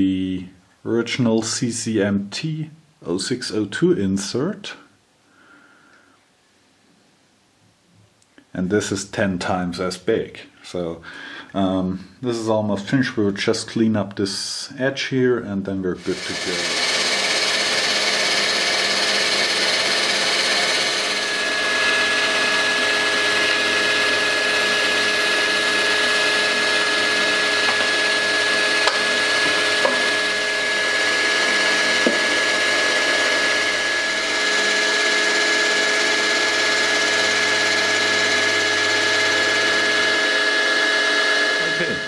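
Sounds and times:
engraving machine spindle milling: 16.0 - 42.0.

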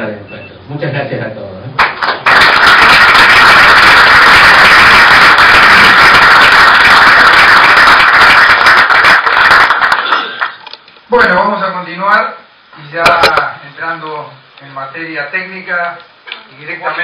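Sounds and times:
audience applauding: 1.8 - 10.6.

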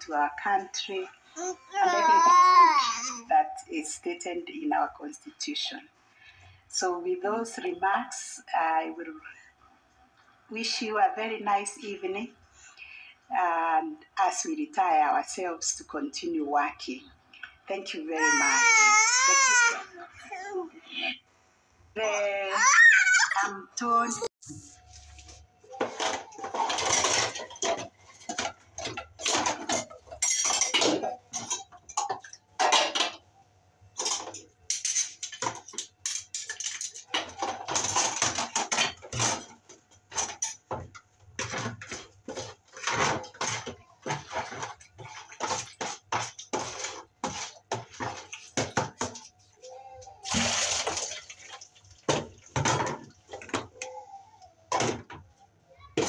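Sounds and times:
metal dishes clinking: 25.9 - 33.2, 34.0 - 39.5
water splashing: 50.2 - 52.4.

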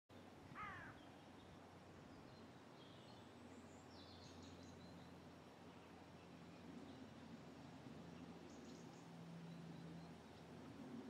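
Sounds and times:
bird call: 0.6 - 1.0.

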